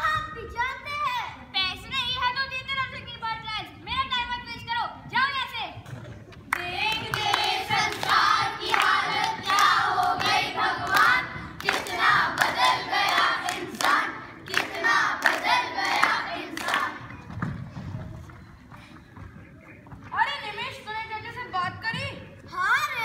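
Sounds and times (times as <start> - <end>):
hand claps: 6.4 - 17.6.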